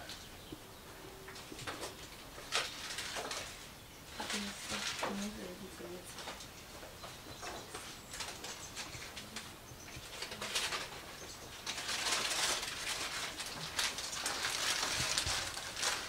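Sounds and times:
wild birds calling: 0:00.0 - 0:16.0.

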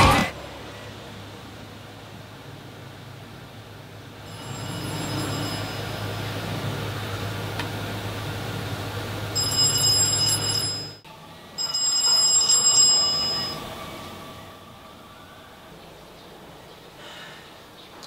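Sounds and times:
phone ringtone chiming: 0:04.2 - 0:06.5, 0:09.4 - 0:11.0, 0:11.6 - 0:13.9.

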